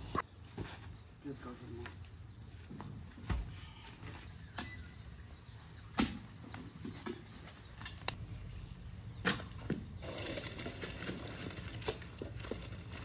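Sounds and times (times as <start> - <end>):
faint bird chirping: 0.0 - 10.0.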